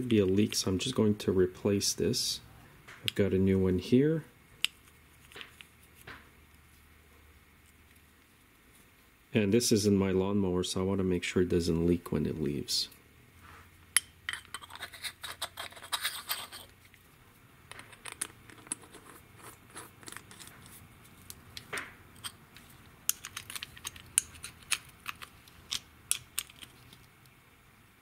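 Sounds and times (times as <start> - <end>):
clicks and scrapes of metal parts: 14.0 - 17.0, 17.7 - 27.2.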